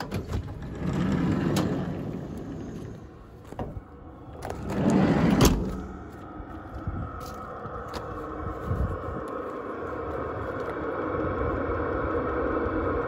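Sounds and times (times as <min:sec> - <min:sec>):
stepping onto gravel: 0:06.0 - 0:10.8.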